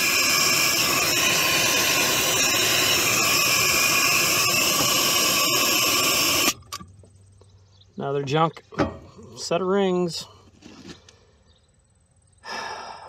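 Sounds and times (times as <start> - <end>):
compressed air hissing: 0.0 - 6.7.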